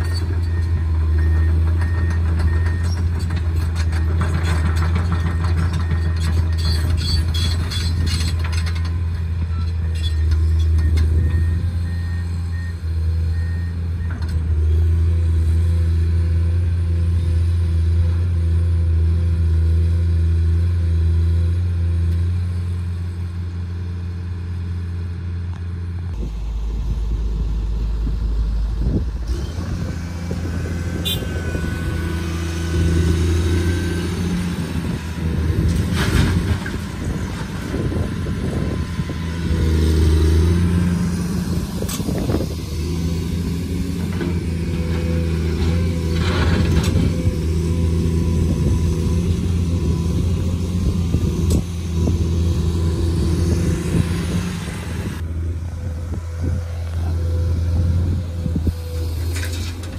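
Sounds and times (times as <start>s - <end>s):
excavator diesel engine: 0.0s - 59.9s.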